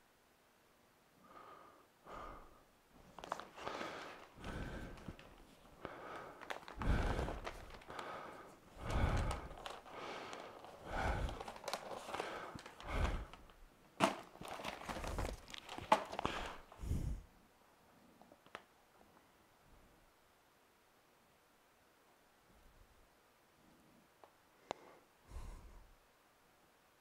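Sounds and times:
filter bag rustling and crinkling: 0:03.0 - 0:16.8.

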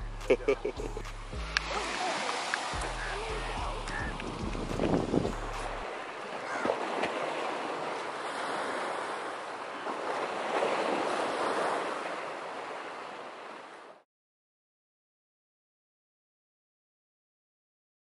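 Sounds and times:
waves washing on shore: 0:00.2 - 0:14.0
wind on microphone: 0:02.8 - 0:05.9.

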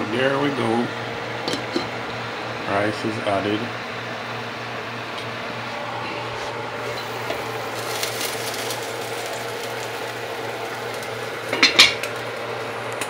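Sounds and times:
steady background hum: 0:00.0 - 0:13.0
pot lid clattering: 0:11.5 - 0:12.1.

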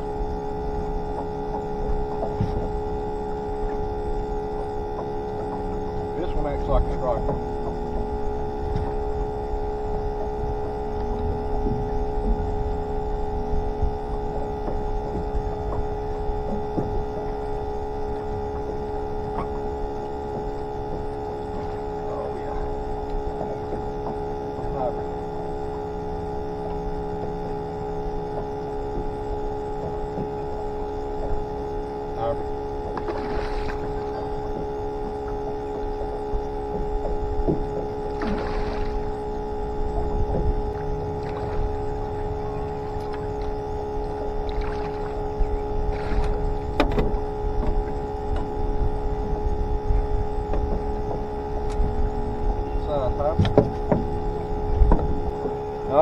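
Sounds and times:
aerator pump electric whine: 0:00.0 - 0:56.0
low rumble: 0:32.5 - 0:55.7
faint knocks: 0:53.3 - 0:55.6.

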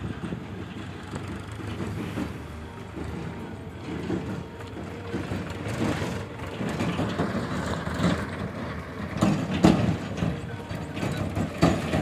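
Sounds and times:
heavy diesel engine rumbling: 0:00.0 - 0:12.0.

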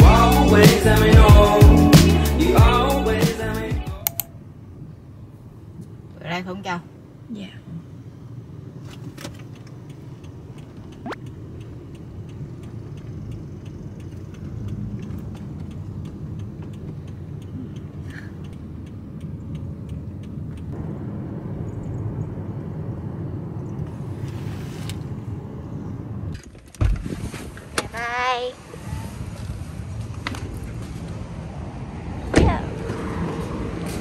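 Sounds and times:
faint ticking: 0:09.5 - 0:20.8.

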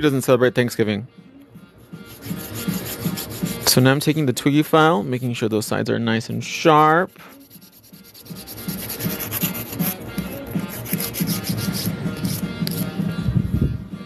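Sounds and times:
nail file scraping: 0:02.0 - 0:03.8, 0:07.2 - 0:13.0.

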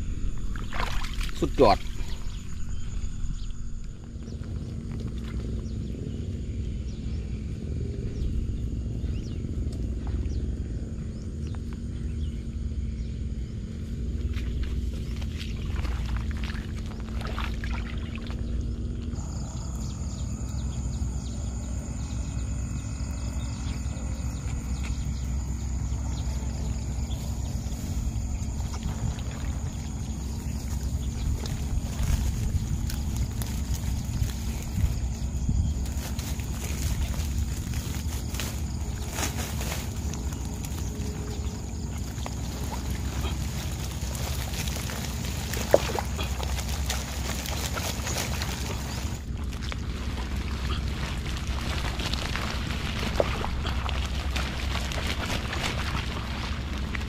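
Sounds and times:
low rumble: 0:00.0 - 0:57.0.

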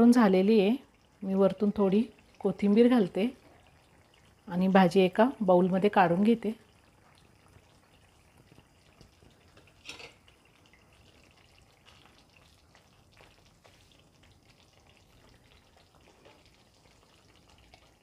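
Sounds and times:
spoon scraping and tapping: 0:09.8 - 0:10.2.

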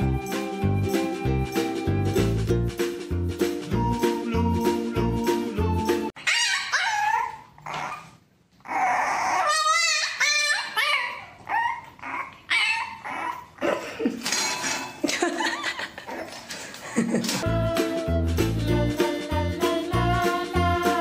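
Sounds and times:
music with steady beat: 0:00.0 - 0:06.1, 0:17.4 - 0:21.0
puppy whining and yipping: 0:06.1 - 0:13.6.

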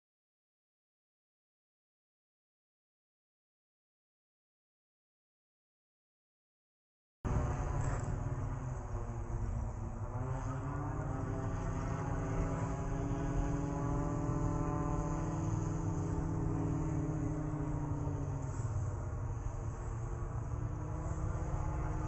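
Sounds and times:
engine running: 0:07.3 - 0:22.0.

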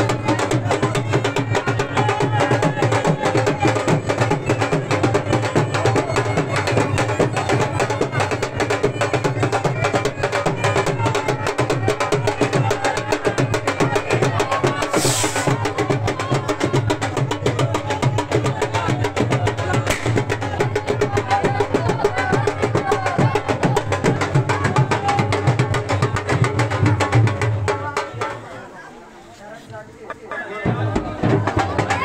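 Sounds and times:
drums beaten with sticks: 0:00.0 - 0:28.5, 0:30.6 - 0:32.0
brief hiss: 0:14.9 - 0:15.6.

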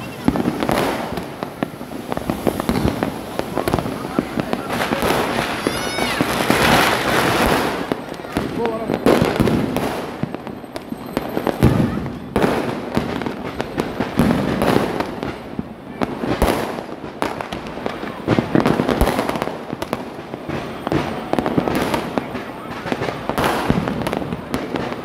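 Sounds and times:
firecrackers crackling: 0:00.0 - 0:25.0
firework bangs: 0:00.0 - 0:25.0.

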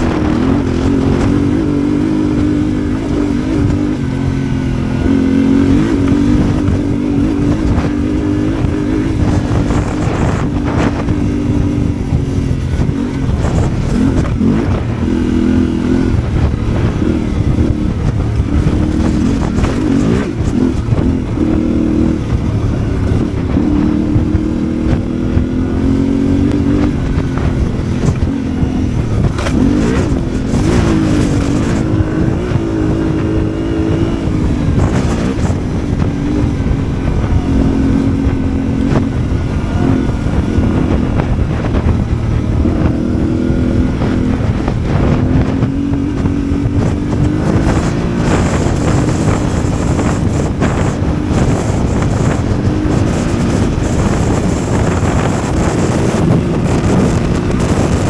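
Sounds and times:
motorcycle engine revving: 0:00.0 - 0:58.0
wind on microphone: 0:00.0 - 0:58.0.

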